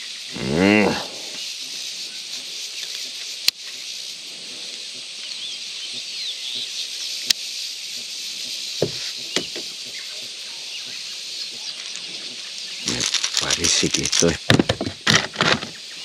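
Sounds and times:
high-pitched insect drone: 0.0s - 16.0s
bird chirps: 5.2s - 13.6s.

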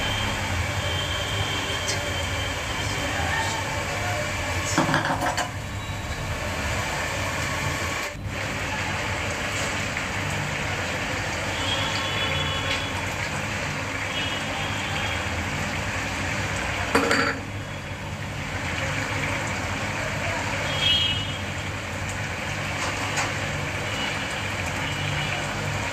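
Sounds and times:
gas burner rushing: 0.0s - 14.0s
clatter in a pot: 4.7s - 5.6s, 16.9s - 17.6s, 22.7s - 23.6s.

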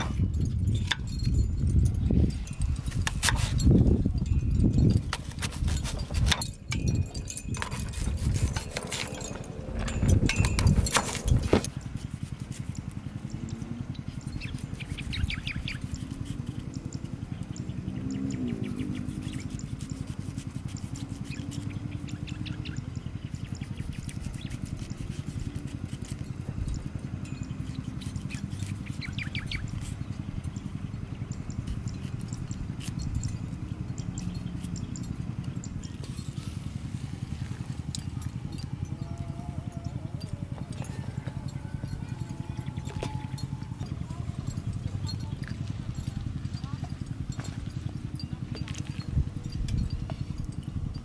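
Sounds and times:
steady low hum: 0.0s - 51.0s
knife peeling fruit: 2.8s - 4.2s, 5.0s - 17.5s, 18.3s - 30.6s, 31.5s - 39.6s
bird chirps: 13.3s - 24.8s, 27.4s - 32.6s.

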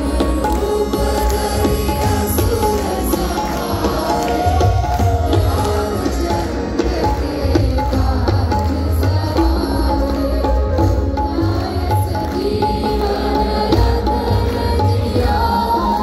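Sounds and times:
hand drum percussion: 0.0s - 16.0s.

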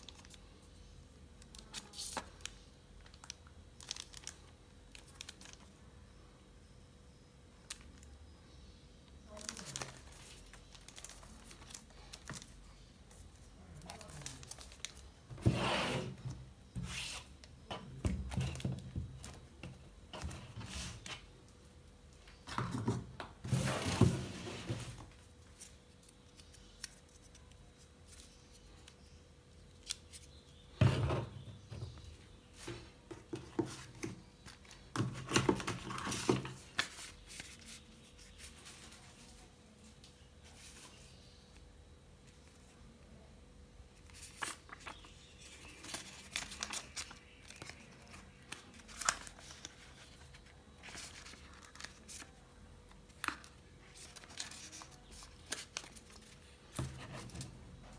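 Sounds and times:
plastic film rustling: 1.5s - 5.6s, 9.3s - 12.6s, 13.8s - 15.1s
cardboard packaging sliding and rubbing: 15.4s - 16.2s.

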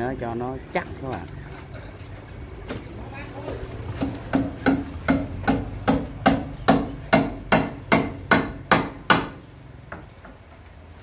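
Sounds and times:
hammer blows on timber: 4.0s - 9.4s.

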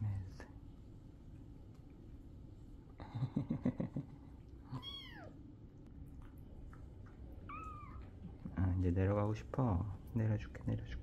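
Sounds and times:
kitten meowing: 4.8s - 5.3s, 7.5s - 8.0s.

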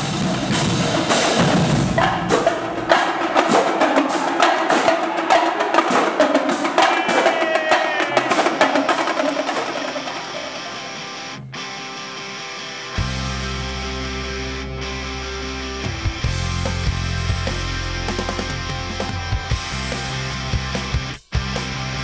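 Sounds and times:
snare and tenor drums: 0.0s - 10.4s.

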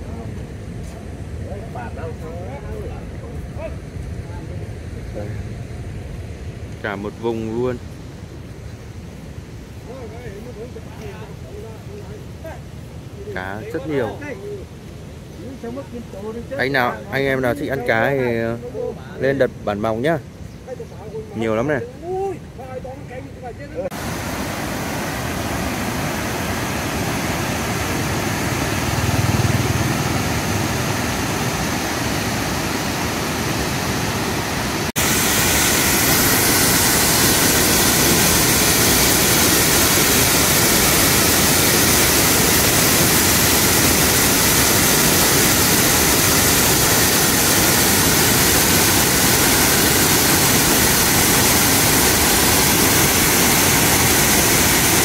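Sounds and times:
floodwater rushing through spillway: 23.8s - 55.0s.

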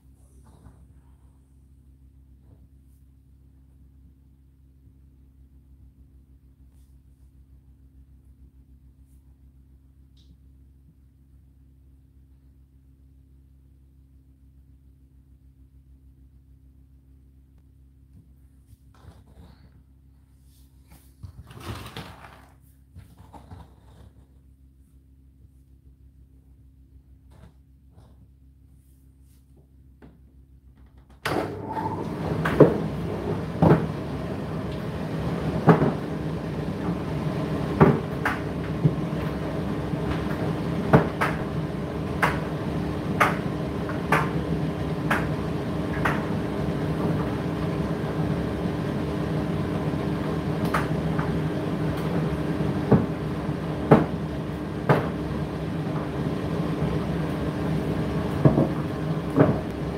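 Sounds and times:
tumble dryer motor hum: 31.2s - 59.9s
dryer drum knocking: 32.0s - 48.2s, 50.2s - 59.9s.

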